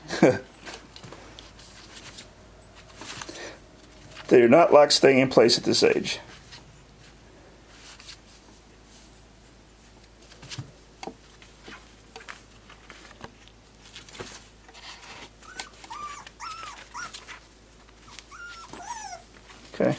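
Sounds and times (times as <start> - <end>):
rustles and scratches on fabric: 0.6 - 4.4, 6.2 - 19.9
puppy whimpering: 15.4 - 17.4, 18.0 - 19.3.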